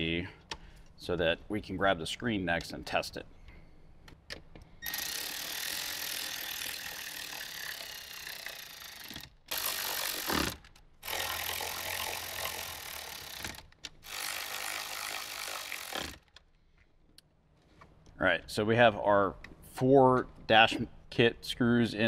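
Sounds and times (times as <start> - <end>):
cordless electric ratchet running: 4.8 - 16.3.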